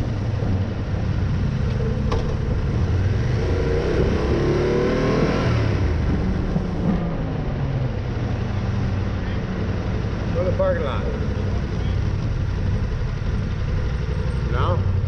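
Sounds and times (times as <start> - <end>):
motorcycle engine running: 8.6 - 15.0.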